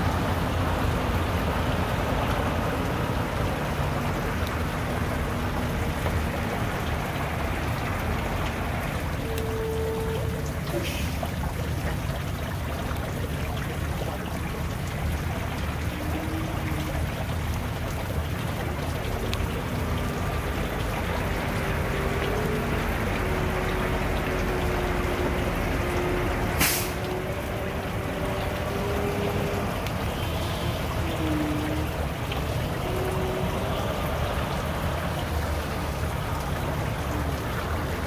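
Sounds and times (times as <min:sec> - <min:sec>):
air brake hiss: 0:26.6 - 0:27.0.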